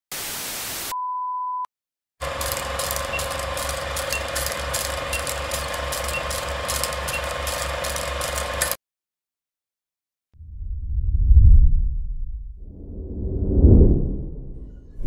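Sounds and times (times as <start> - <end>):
tv static hiss: 0.1 - 0.9
film projector rattle and hum: 2.2 - 8.8.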